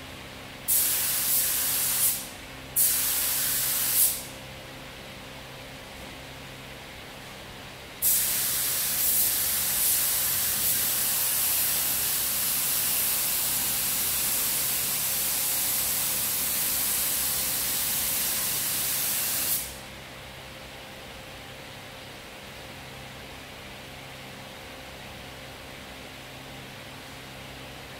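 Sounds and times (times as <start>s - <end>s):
spray gun hissing: 0.7s - 4.3s, 8.0s - 19.8s.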